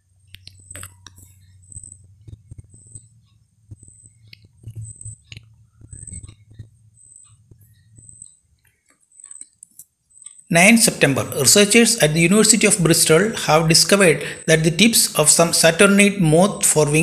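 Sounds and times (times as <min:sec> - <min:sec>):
steady low hum: 0:00.0 - 0:17.0
small clicks and taps: 0:00.3 - 0:10.5
faint high-pitched chirp: 0:03.9 - 0:10.5.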